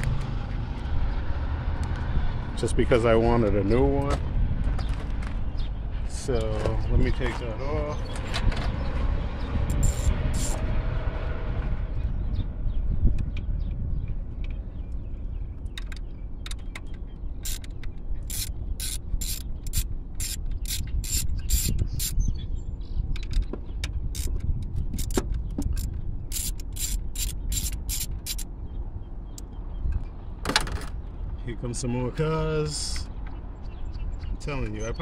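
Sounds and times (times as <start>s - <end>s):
hand ratchet clicking: 9.7s - 10.6s, 17.4s - 22.2s, 24.2s - 28.5s.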